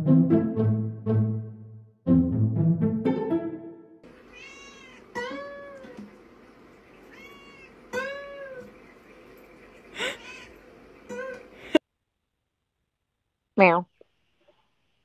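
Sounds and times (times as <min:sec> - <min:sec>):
background music: 0:00.0 - 0:04.1
cat meowing: 0:04.2 - 0:06.1, 0:07.1 - 0:08.7, 0:10.2 - 0:11.4.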